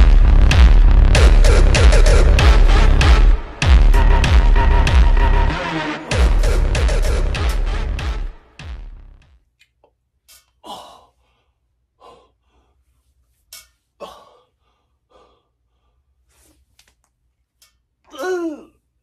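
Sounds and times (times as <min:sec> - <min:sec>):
man breathing hard: 0:10.5 - 0:13.2, 0:13.9 - 0:16.6.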